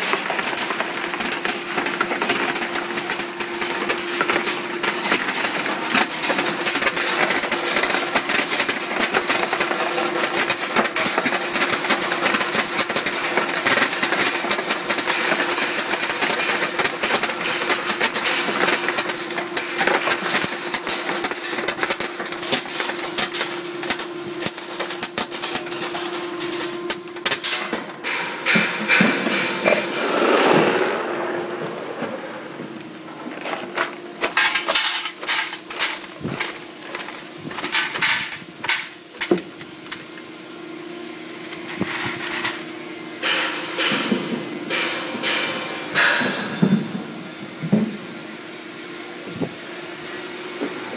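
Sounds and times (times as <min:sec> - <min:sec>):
clatter of stones pouring: 0:00.0 - 0:27.6, 0:34.2 - 0:39.6
steady machine hum: 0:00.0 - 0:50.9.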